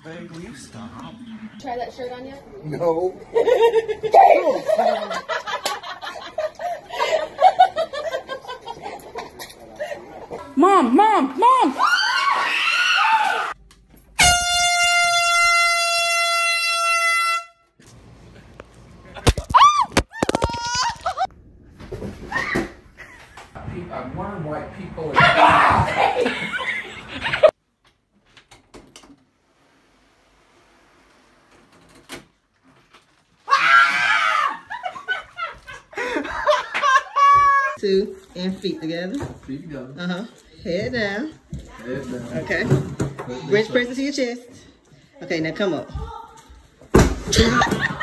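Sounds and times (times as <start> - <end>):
woman screaming: 10.6 - 13.6, 33.5 - 34.7
air horn blasting: 14.2 - 17.8.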